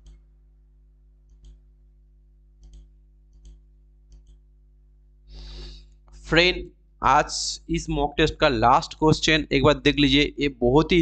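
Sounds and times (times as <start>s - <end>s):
faint steady hum: 0.0s - 11.0s
short hiss: 5.3s - 5.8s.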